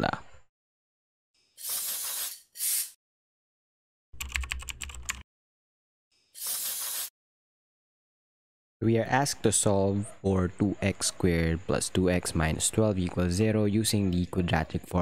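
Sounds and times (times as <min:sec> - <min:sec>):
keyboard typing clicks: 0:04.2 - 0:05.2.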